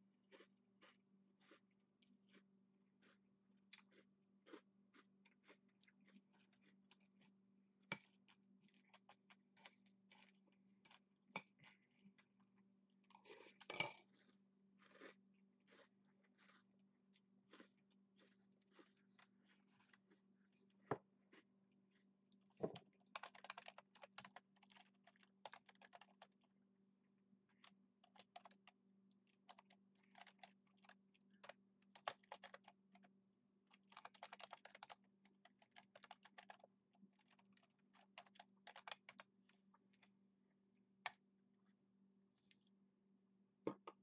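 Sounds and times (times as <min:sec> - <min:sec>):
faint low hum: 0:00.0 - 0:44.0
typing on computer keyboard: 0:23.1 - 0:26.3, 0:29.5 - 0:32.7, 0:33.8 - 0:36.6, 0:37.9 - 0:39.2.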